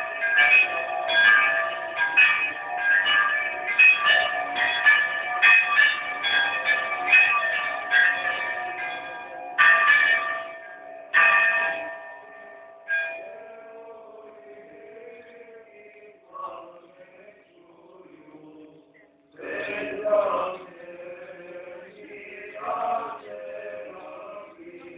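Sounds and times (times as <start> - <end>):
church bells ringing: 0.0 - 17.3.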